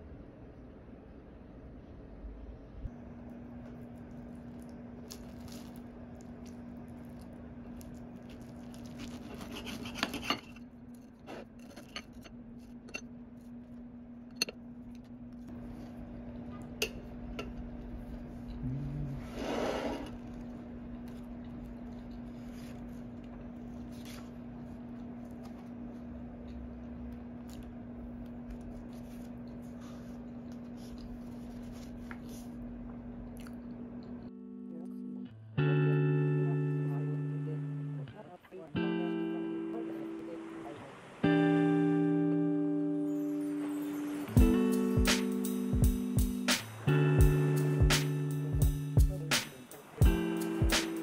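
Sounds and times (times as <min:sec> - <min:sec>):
low steady hum: 0:00.0 - 0:51.0
cutlery scraping on ceramic plate: 0:09.2 - 0:10.6.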